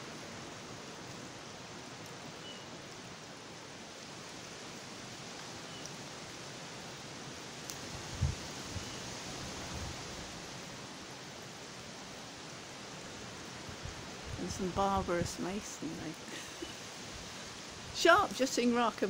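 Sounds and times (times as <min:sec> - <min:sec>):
faint drip ticks: 0:05.4 - 0:06.0.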